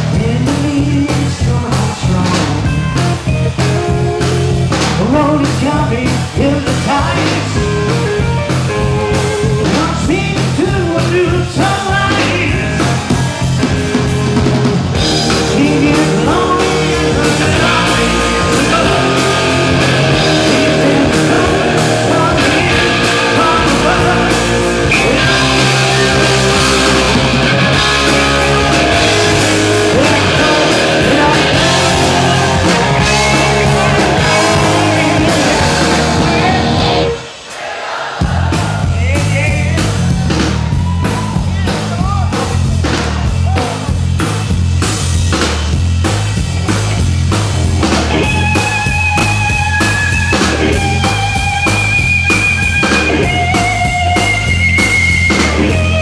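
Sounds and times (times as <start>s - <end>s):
bass guitar: 0.0s - 37.4s, 38.2s - 56.0s
electric guitar: 0.0s - 37.4s, 39.7s - 56.0s
drum kit: 0.0s - 56.0s
person singing: 8.8s - 13.2s, 15.1s - 39.9s.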